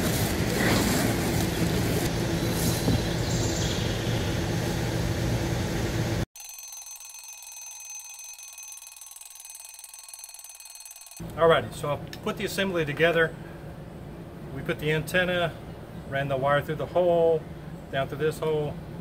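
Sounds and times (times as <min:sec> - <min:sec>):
electronic alarm ringing: 0:06.4 - 0:11.3.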